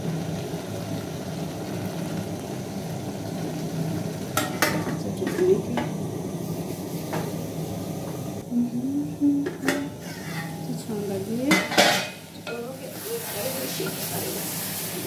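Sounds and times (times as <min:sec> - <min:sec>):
gas burner low rush: 0:00.0 - 0:15.0
stew sizzling: 0:00.0 - 0:15.0
wooden spoon stirring a pot: 0:09.7 - 0:10.8
metal lid clinking on pot: 0:11.5 - 0:12.2.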